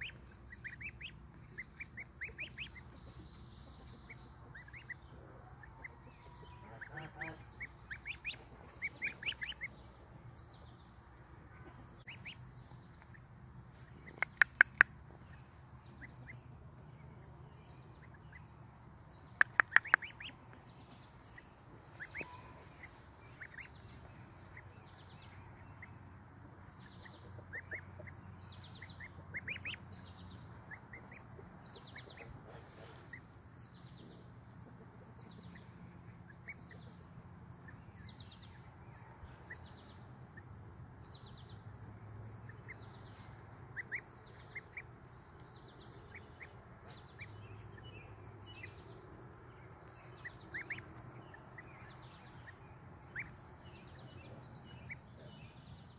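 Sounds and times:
goslings peeping: 0:00.0 - 0:10.2, 0:11.6 - 0:16.4, 0:19.3 - 0:26.0, 0:26.8 - 0:33.4, 0:43.7 - 0:44.9, 0:49.8 - 0:55.9
sharp clicks: 0:14.2 - 0:14.9, 0:19.4 - 0:20.1.

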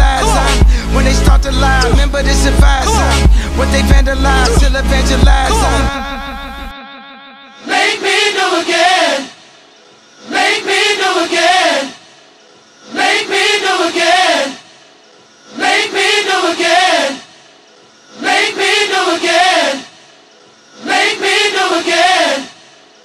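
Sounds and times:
person chanting: 0:00.0 - 0:09.4.

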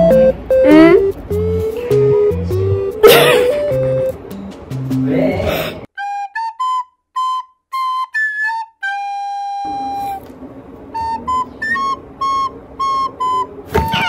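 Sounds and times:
light melody of pitched notes: 0:00.0 - 0:05.0.

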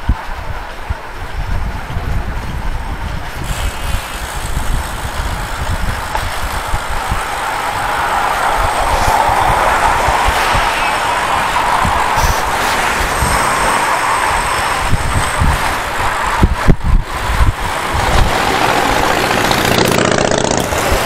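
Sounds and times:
bike tyres on rough asphalt: 0:00.0 - 0:21.0
wind buffeting microphone: 0:00.0 - 0:21.0.

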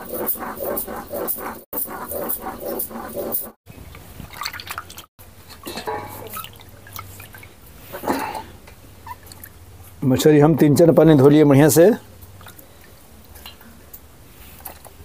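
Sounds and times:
water splashing and dripping: 0:04.2 - 0:05.1.

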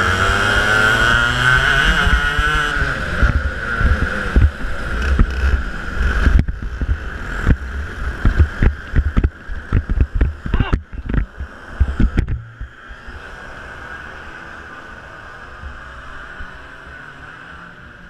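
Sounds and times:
kart engine running: 0:00.0 - 0:18.0
wind buffeting microphone: 0:00.5 - 0:12.7.

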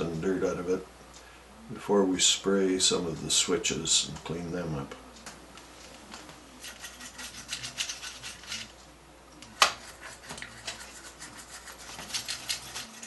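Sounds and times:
brush scrubbing circuit board: 0:06.6 - 0:08.7, 0:09.8 - 0:13.0.

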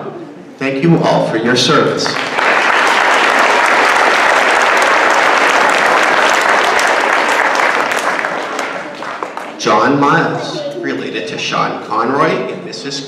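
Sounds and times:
audience applauding: 0:02.0 - 0:10.6.

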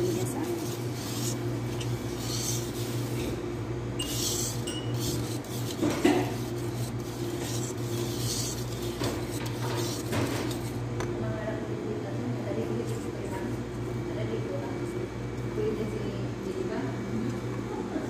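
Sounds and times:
whisk knocking bowl: 0:00.0 - 0:03.4, 0:04.0 - 0:10.8
whisk scraping metal bowl: 0:00.0 - 0:10.8.

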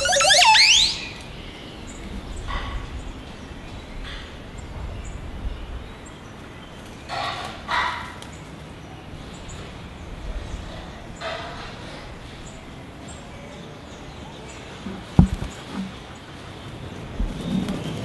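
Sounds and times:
short high chirps: 0:00.0 - 0:01.2.

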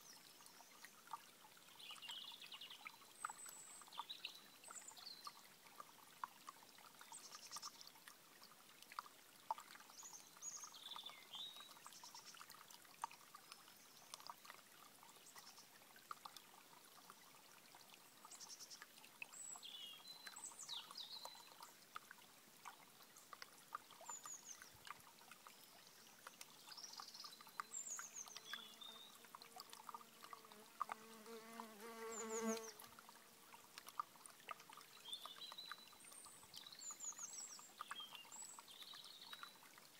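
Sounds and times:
stream trickling over stones: 0:00.0 - 0:39.9
insect buzzing: 0:31.0 - 0:32.8
small birds chirping: 0:31.3 - 0:32.8, 0:35.0 - 0:39.6.

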